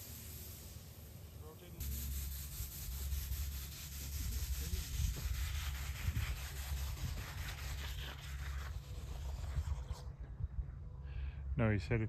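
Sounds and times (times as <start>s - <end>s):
water jet spraying hiss: 0.0s - 9.6s
low rumble: 4.2s - 12.0s.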